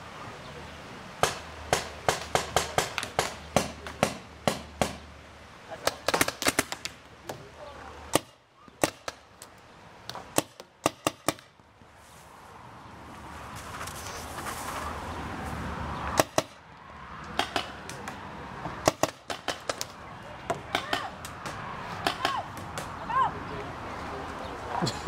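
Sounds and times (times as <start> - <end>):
paintball marker firing: 5.8 - 7.0, 16.2 - 16.6, 17.3 - 18.2, 18.8 - 22.9.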